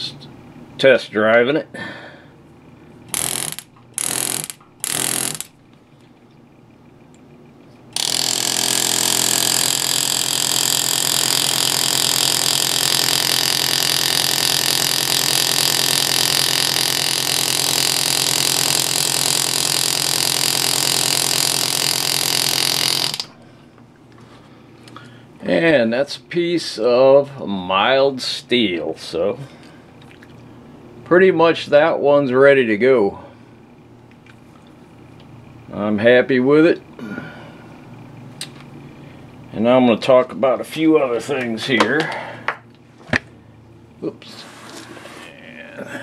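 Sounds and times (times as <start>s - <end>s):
pneumatic engraving tool buzzing: 3.1s - 5.6s, 7.9s - 23.4s.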